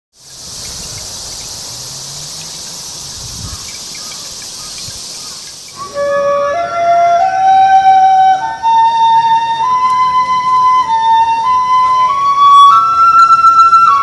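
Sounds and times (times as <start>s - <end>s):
insects shrilling: 0.2s - 6.3s
flute melody: 5.7s - 14.0s.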